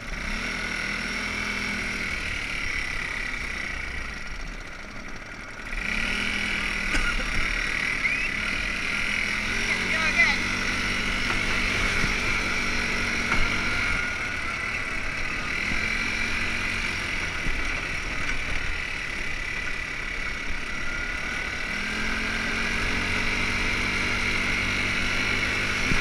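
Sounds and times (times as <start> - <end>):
buggy engine running: 0.0 - 26.0.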